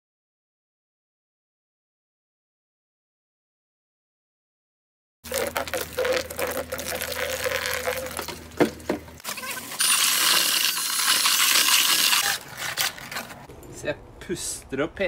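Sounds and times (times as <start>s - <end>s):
dry concrete mix pouring: 5.3s - 13.4s
drill with paddle mixer whining: 9.3s - 12.4s.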